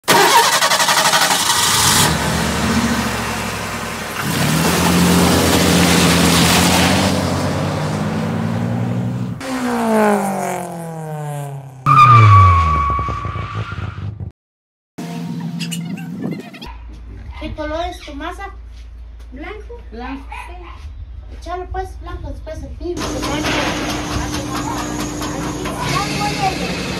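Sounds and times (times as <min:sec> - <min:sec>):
vehicle engine revving: 0:00.0 - 0:14.3, 0:23.0 - 0:26.9
high engine whine: 0:23.0 - 0:26.9.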